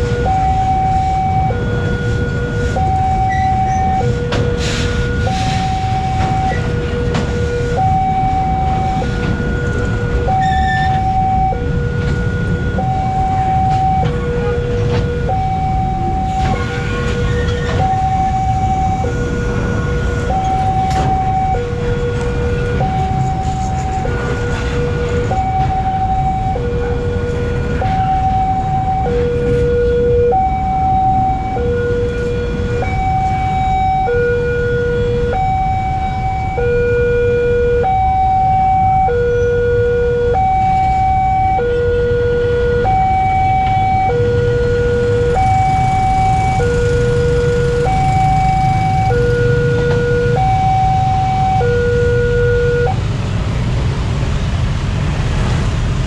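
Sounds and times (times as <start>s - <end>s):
two-tone crossing alarm: 0.0s - 53.0s
train wagons rolling on track: 0.9s - 29.8s.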